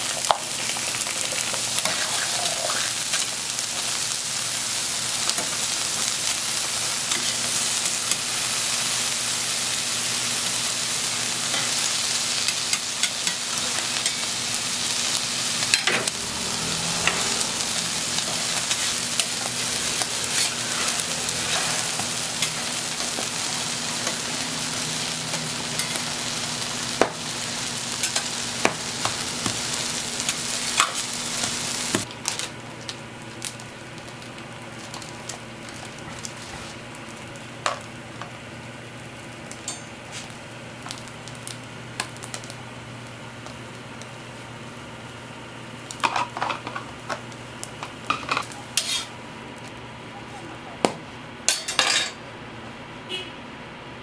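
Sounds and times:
food sizzling on a griddle: 0.0s - 49.7s
utensils scraping on steel: 18.2s - 23.2s, 48.8s - 49.1s.

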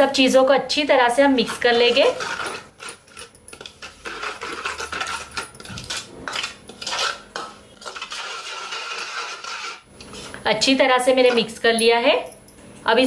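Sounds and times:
spoon scraping metal bowl: 1.4s - 10.4s.

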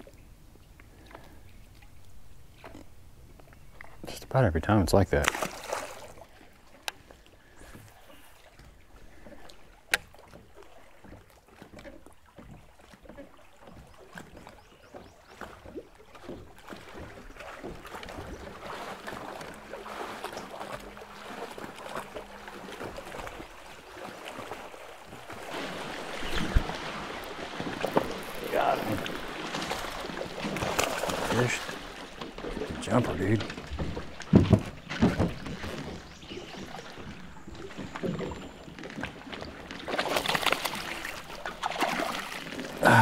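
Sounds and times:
light wind: 0.0s - 43.0s
water: 0.0s - 43.0s.

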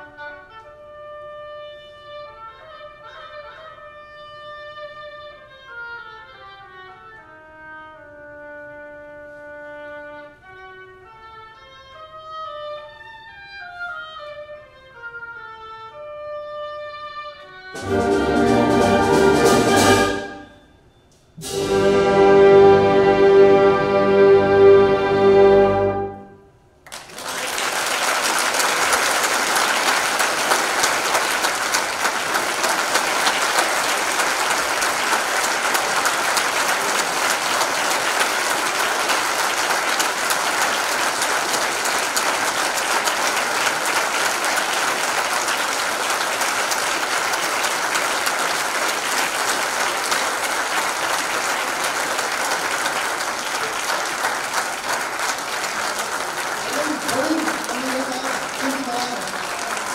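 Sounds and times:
audience applauding: 17.8s - 20.5s, 26.8s - 59.9s
wind band held chord: 17.8s - 20.8s, 21.4s - 26.5s.

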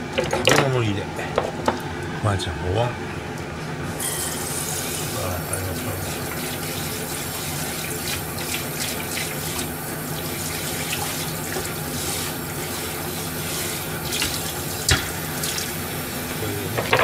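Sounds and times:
dish knocking: 16.8s - 17.0s
dishware clinking: 16.8s - 17.0s.

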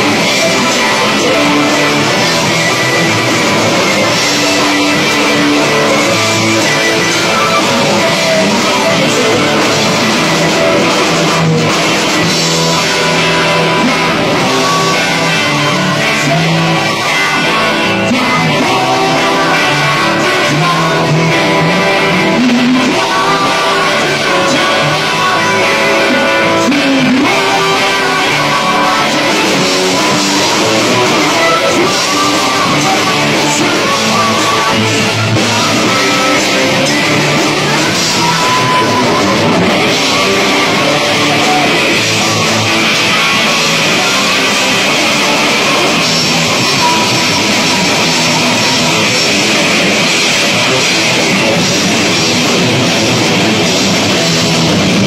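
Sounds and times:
rock band playing: 0.0s - 55.0s.

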